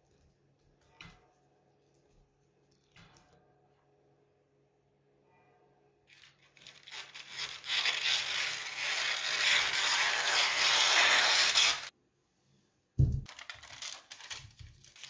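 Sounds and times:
scissors cutting paper: 0:06.2 - 0:11.9.

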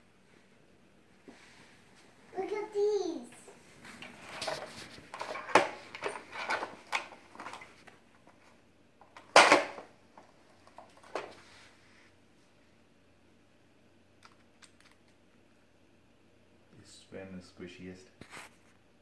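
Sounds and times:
plastic toy truck clattering on floor: 0:04.4 - 0:07.7, 0:09.2 - 0:09.9.

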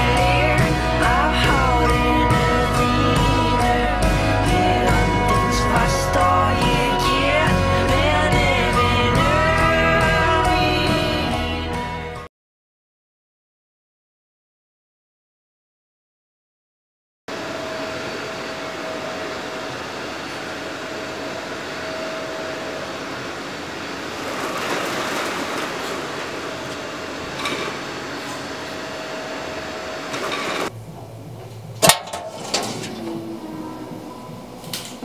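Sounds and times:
roller shutter being raised: 0:21.8 - 0:30.8, 0:31.4 - 0:35.0.

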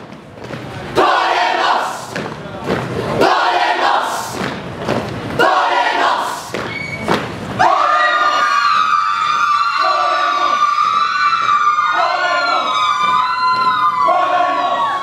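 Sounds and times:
chorus of voices wailing: 0:07.6 - 0:15.0.

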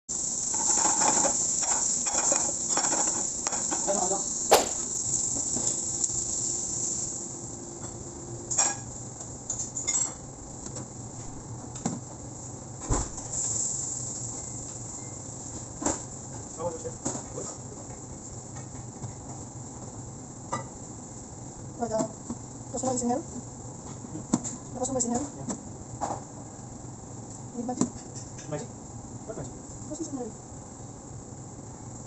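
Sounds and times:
vegetables sizzling in a pan: 0:00.1 - 0:10.1, 0:13.2 - 0:17.7
pan and utensil clatter: 0:00.5 - 0:05.8.

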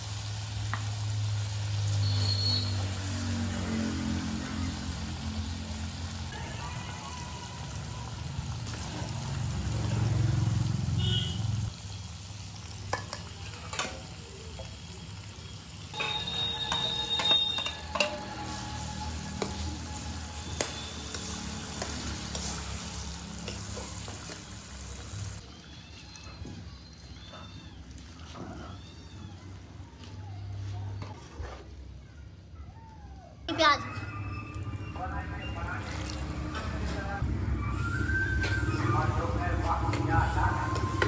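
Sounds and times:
spice paste sizzling in oil: 0:00.0 - 0:26.3.

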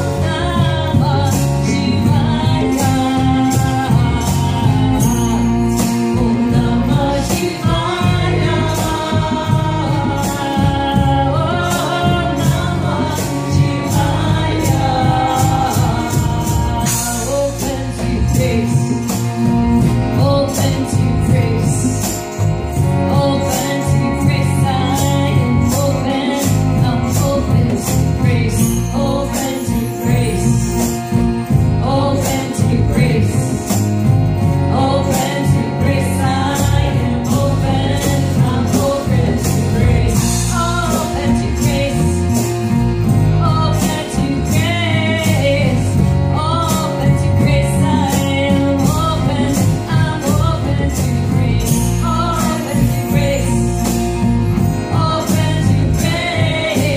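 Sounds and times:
hand drum: 0:00.0 - 0:56.9
percussion beat: 0:00.0 - 0:56.9
devotional chant singing: 0:01.9 - 0:18.7.

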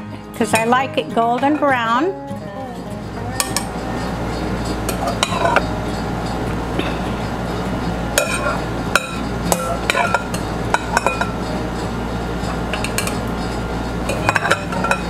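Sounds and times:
steady low hum: 0:01.5 - 0:15.0
spoon clinking against bowls: 0:03.0 - 0:15.0.

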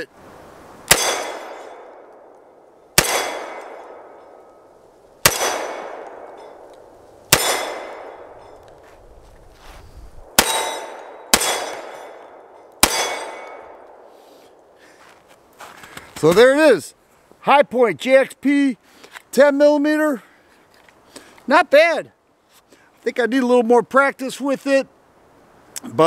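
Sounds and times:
pistol shots with echo: 0:00.9 - 0:02.3, 0:03.0 - 0:04.4, 0:05.2 - 0:06.7, 0:07.3 - 0:08.5, 0:10.2 - 0:14.1.

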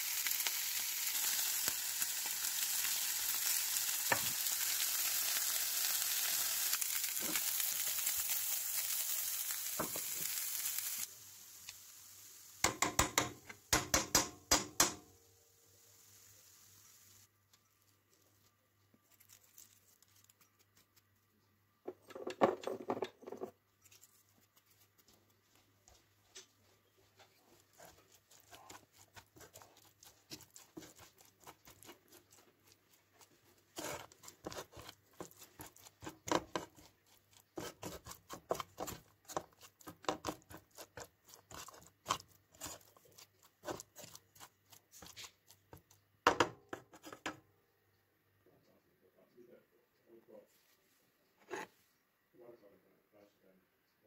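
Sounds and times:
spatula scraping a frying pan: 0:27.1 - 0:46.0, 0:46.7 - 0:47.4.

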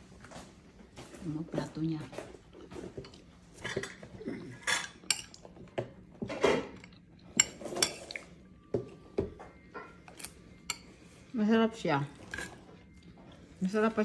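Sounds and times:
cutlery clinking on plates: 0:03.0 - 0:08.3.

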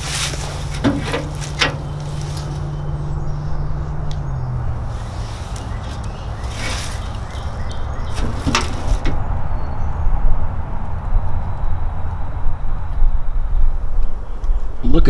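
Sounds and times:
metal can rustling: 0:00.0 - 0:02.7, 0:05.5 - 0:09.3
steady low rumble: 0:00.0 - 0:14.8.

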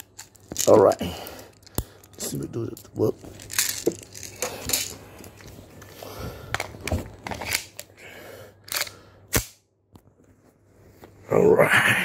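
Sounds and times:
pistol parts clicking: 0:02.8 - 0:05.0, 0:08.6 - 0:09.6.

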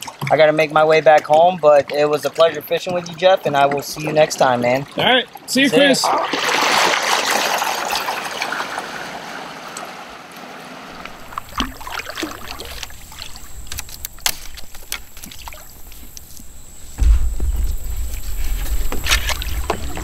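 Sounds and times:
water rushing around a kayak: 0:00.0 - 0:20.0
low rumble: 0:11.0 - 0:20.0
small knocks and clicks: 0:12.7 - 0:20.0.

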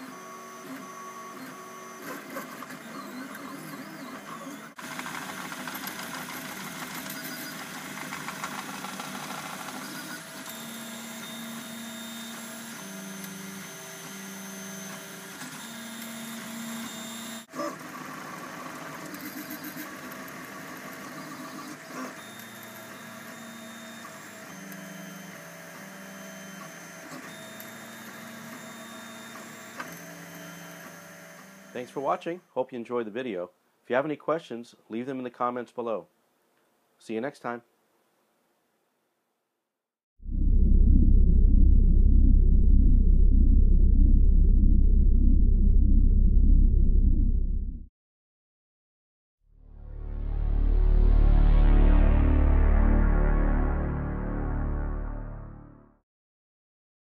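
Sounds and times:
steady mechanical whir: 0:00.0 - 0:31.9.

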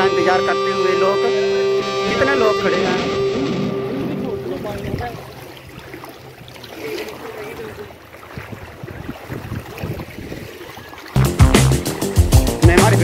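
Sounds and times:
floodwater flowing and sloshing: 0:03.4 - 0:12.7.

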